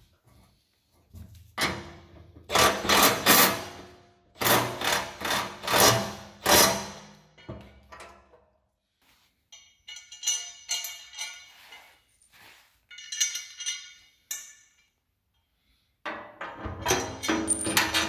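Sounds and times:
metal tube clinking on metal: 9.5 - 15.0, 16.8 - 18.0.

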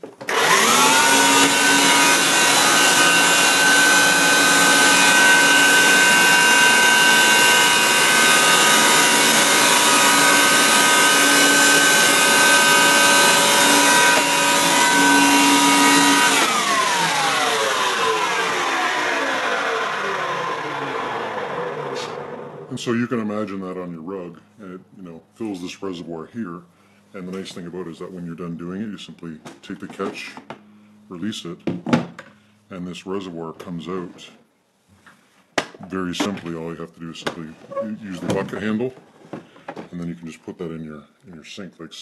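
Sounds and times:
carpet cleaner motor whine: 0.2 - 22.7.

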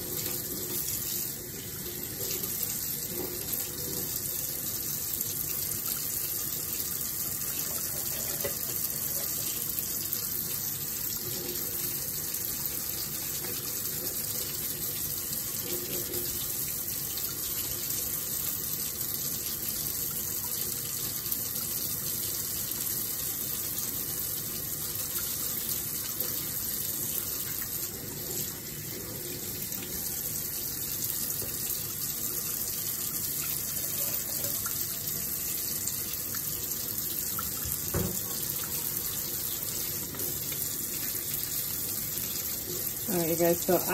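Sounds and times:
tap water running into metal sink: 0.0 - 43.9
metal tools rinsed and scrubbed: 7.5 - 9.6.

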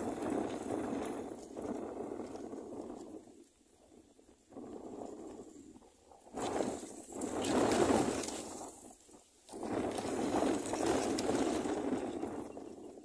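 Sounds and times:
dry grass nest rustling: 5.8 - 12.4.

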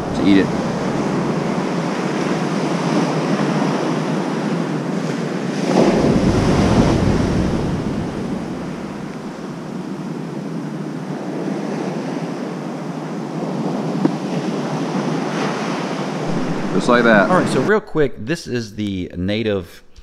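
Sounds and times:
wind on microphone: 0.0 - 9.7, 16.0 - 18.4
ocean surf washing: 0.0 - 18.4.

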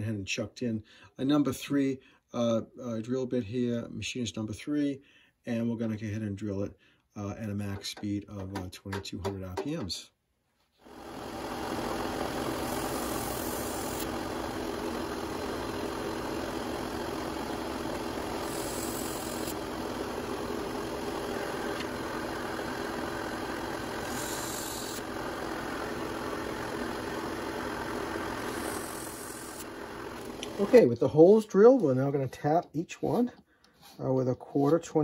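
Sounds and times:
drill press motor running: 10.8 - 30.8
drill bit cutting plate: 10.9 - 30.8.

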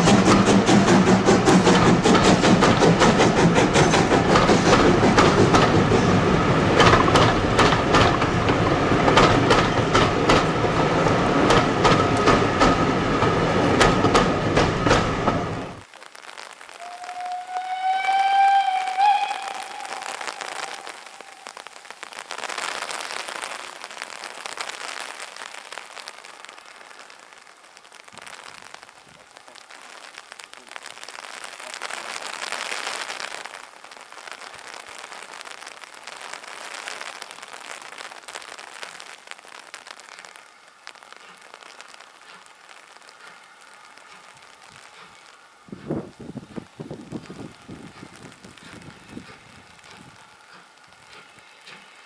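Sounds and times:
steam locomotive whistle: 16.8 - 21.6
wind gusts on microphone: 45.6 - 50.3.

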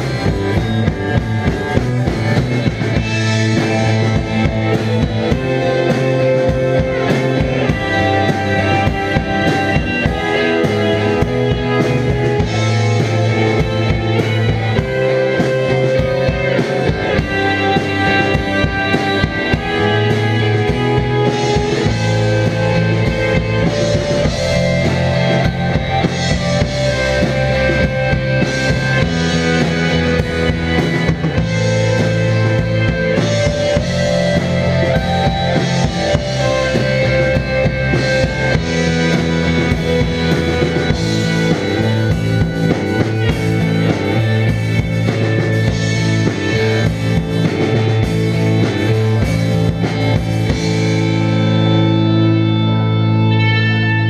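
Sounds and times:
drum kit steady beat: 0.0 - 53.7
bass guitar: 0.0 - 54.0
distorted electric guitars: 0.0 - 54.0.

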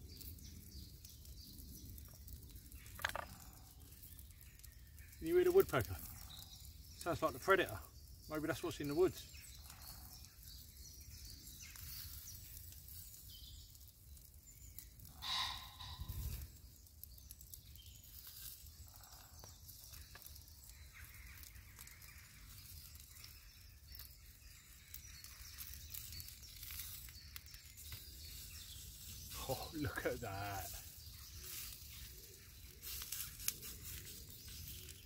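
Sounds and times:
faint woodland ambience: 0.0 - 35.0
bird call: 15.1 - 16.4.

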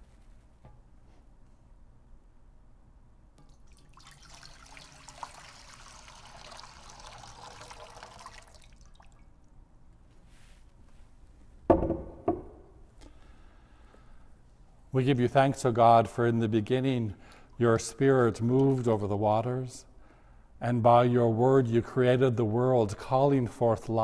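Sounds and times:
water pouring into a bowl: 3.5 - 9.4.

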